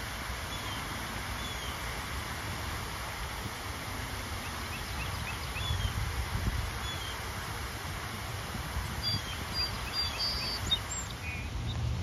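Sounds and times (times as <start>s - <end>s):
wind rumble on microphone: 2.2s - 12.0s
faint bird chirps: 9.0s - 11.8s.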